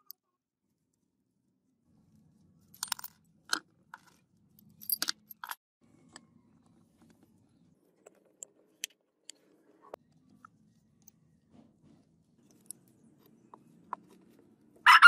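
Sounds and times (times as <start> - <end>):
metal tools clinking: 2.8 - 3.2, 4.0 - 5.6.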